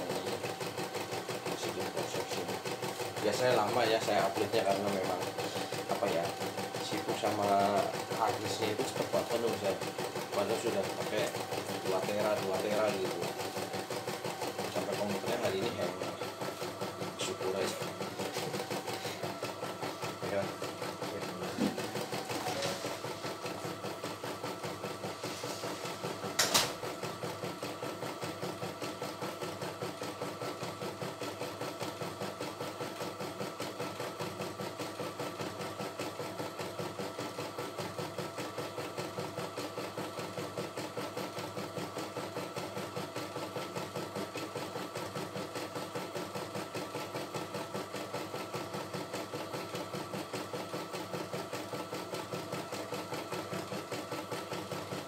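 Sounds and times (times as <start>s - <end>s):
embroidery machine needle stitching: 0.0s - 55.0s
motor hum: 0.0s - 55.0s
sharp click: 26.4s - 26.8s.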